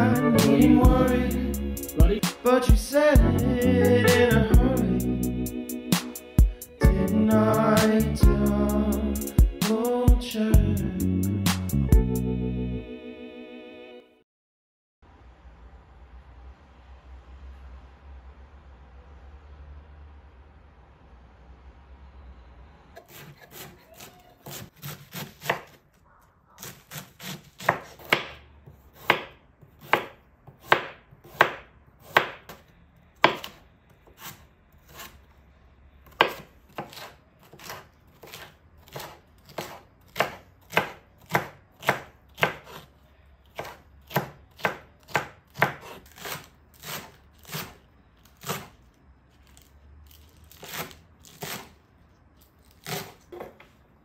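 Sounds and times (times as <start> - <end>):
knife chopping on cutting board: 23.0 - 25.8, 26.6 - 32.6, 33.2 - 35.2, 36.1 - 42.9, 43.5 - 48.8, 50.4 - 51.8, 52.7 - 53.7.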